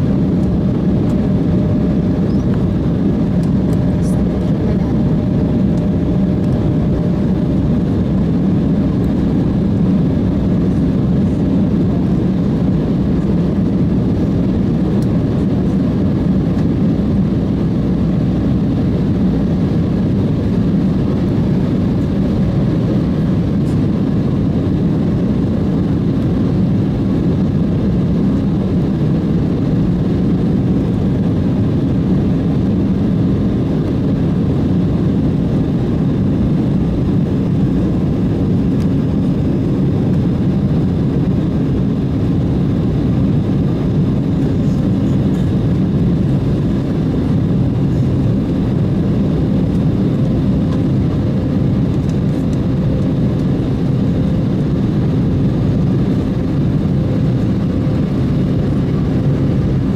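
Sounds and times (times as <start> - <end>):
jet cabin airflow and engine hum: 0.0 - 59.9.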